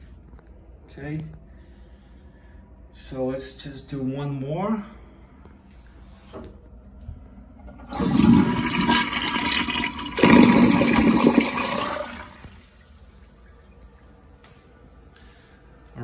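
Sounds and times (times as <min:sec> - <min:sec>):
toilet flushing: 0:07.6 - 0:14.4.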